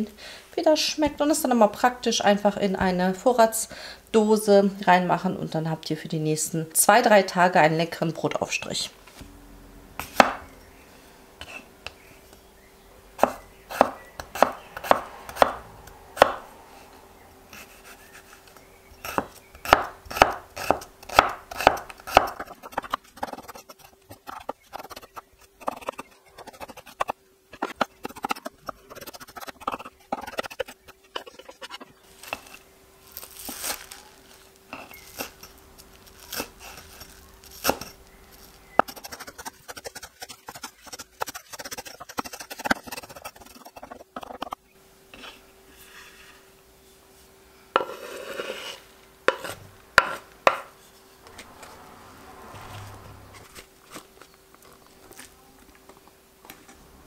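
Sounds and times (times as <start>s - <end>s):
knife chopping on wooden board: 10.0s - 10.4s, 13.2s - 15.6s, 16.2s - 16.4s, 19.0s - 25.0s, 49.3s - 50.7s.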